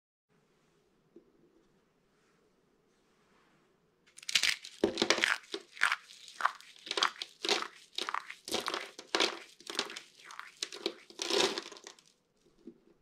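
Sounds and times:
soap shavings crunching: 4.2 - 12.1.

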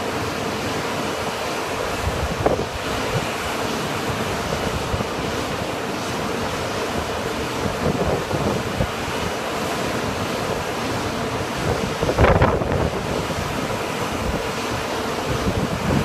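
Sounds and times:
wind buffeting microphone: 1.9 - 3.3, 7.0 - 9.3, 11.4 - 16.0.

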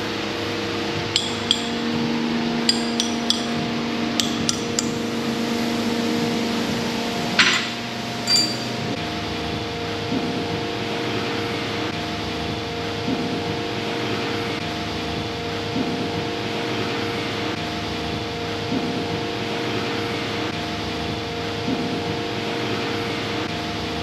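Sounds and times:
metal clank: 1.2 - 2.1, 2.7 - 5.0, 7.4 - 9.0
hammer tapping metal: 1.2 - 5.1, 7.4 - 8.9.

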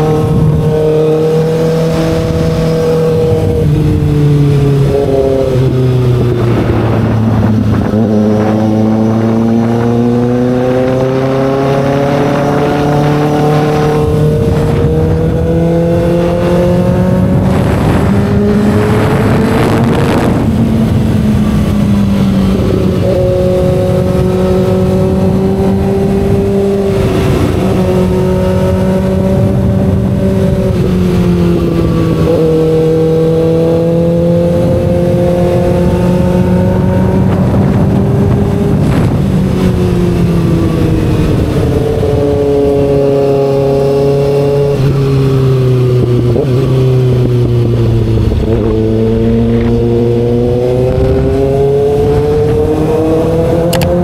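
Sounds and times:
motorcycle engine running: 11.7 - 54.0.

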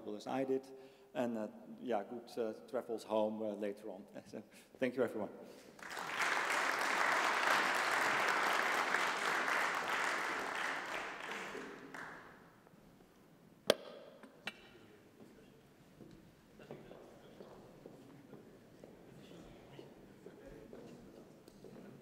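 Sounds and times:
audience applauding: 5.8 - 12.4.

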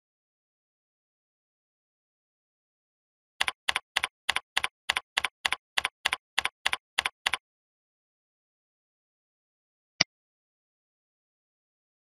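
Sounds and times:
keyboard keystrokes: 3.4 - 7.4.

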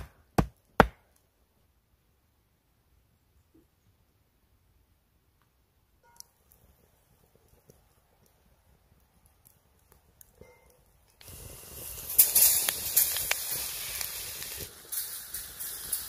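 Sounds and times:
oil sizzling with pops: 6.0 - 16.0.

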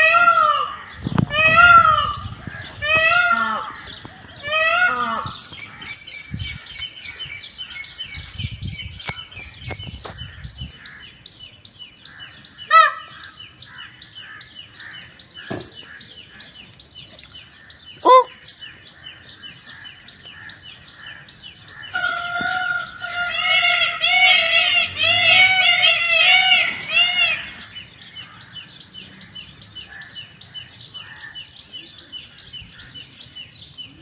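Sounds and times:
peafowl calls: 0.0 - 7.8, 12.1 - 16.7, 17.7 - 18.6, 19.4 - 31.8.

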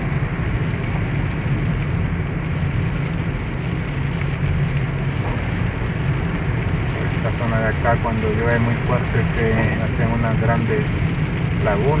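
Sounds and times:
car engine and tyre noise: 0.0 - 12.0
rain on a car: 0.0 - 12.0.

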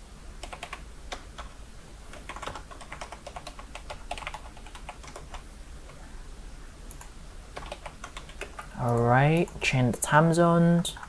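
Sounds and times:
keyboard typing clicks: 0.4 - 1.5, 2.1 - 6.0, 6.9 - 9.6.

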